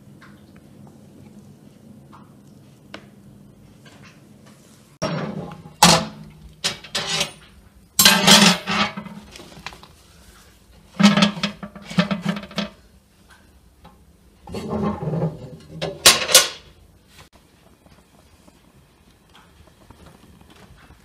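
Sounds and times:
wire rack clanking in metal oven: 5.0 - 9.4, 10.9 - 12.8, 14.4 - 16.7.

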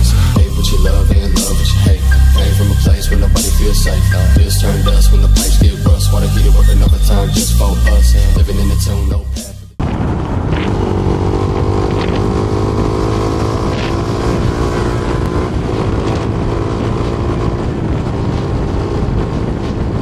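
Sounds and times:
wind noise: 9.8 - 20.0
motorcycle engine cruising: 10.0 - 20.0.

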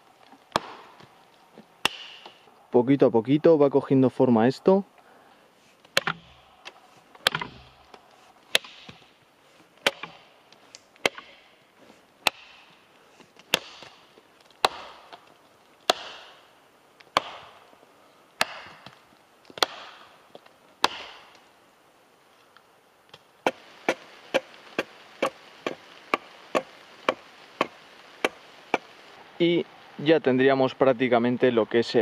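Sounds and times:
axe chopping log: 0.5 - 1.0, 1.8 - 2.4, 5.9 - 6.4, 7.2 - 7.8, 8.5 - 9.1, 9.8 - 10.3, 11.0 - 11.5, 12.2 - 12.7, 13.5 - 14.0, 14.6 - 15.2, 15.8 - 16.4, 17.1 - 17.6, 18.4 - 18.9, 19.6 - 20.1, 20.8 - 21.3, 23.4 - 28.9.

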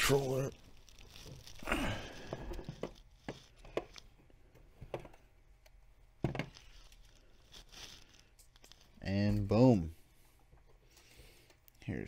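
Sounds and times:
plastic rustling slide: 6.6 - 8.9.

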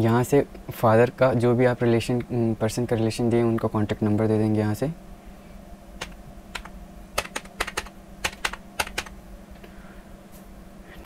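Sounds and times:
keyboard keys clicking: 6.0 - 9.2.

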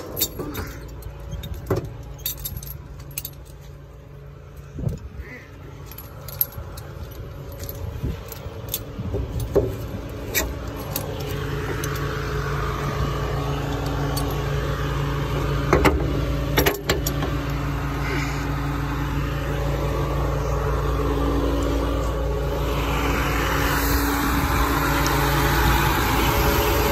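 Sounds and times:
chains clinking and knocking: 0.0 - 14.7
diesel engine idling: 0.0 - 26.9.

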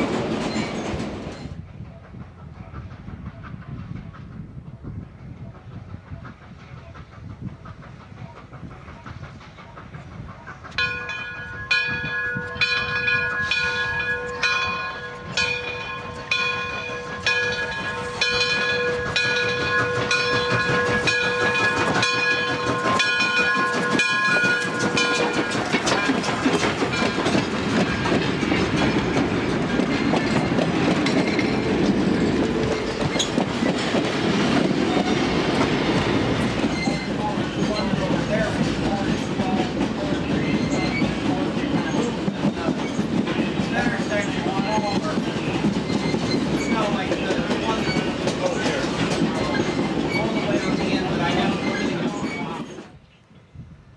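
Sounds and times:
train wheels rumbling on rails: 0.0 - 53.9
locomotive bell ringing: 10.7 - 30.4.

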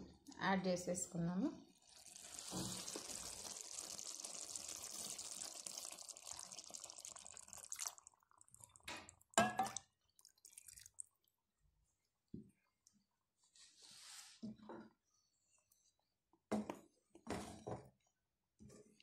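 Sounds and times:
liquid hissing in hot pan: 1.8 - 7.9.

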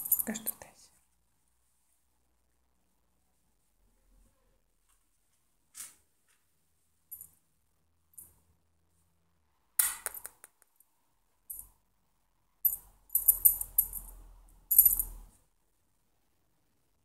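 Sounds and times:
small object clinking and rattling: 0.0 - 0.6, 11.5 - 11.7, 12.6 - 15.3.

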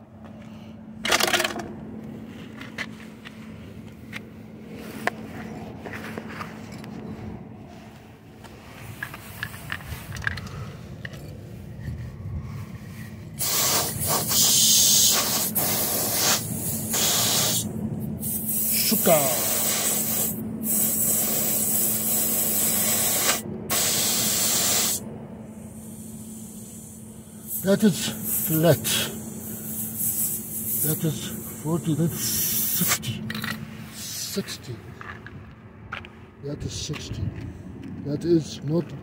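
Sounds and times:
air hissing from tire valve: 13.3 - 33.2.

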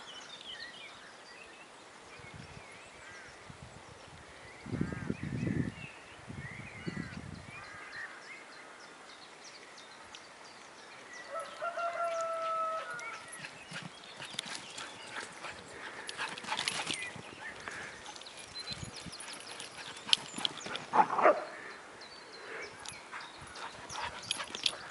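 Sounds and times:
dogs running across grass: 11.3 - 21.5, 22.9 - 24.9.

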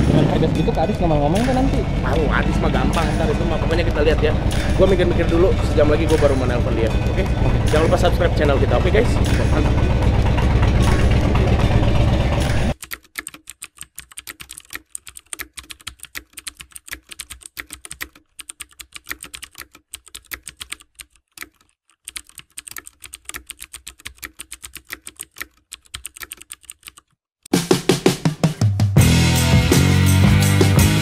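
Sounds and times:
rapid keyboard clicks: 12.4 - 27.2.

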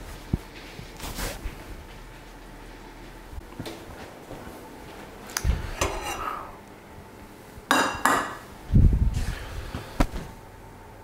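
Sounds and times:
metal pans clanking: 5.8 - 6.4.

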